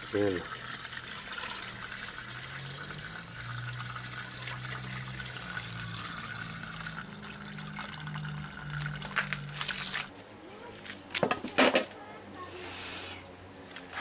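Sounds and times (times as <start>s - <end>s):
juice pouring and gurgling: 0.0s - 10.1s.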